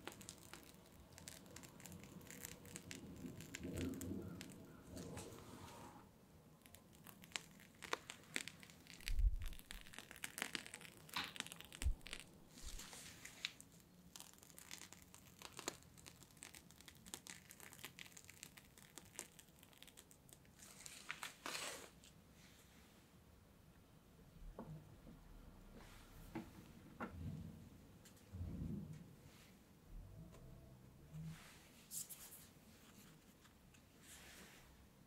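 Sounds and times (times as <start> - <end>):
plastic piping bag crinkling: 0.0 - 5.4, 6.5 - 22.2.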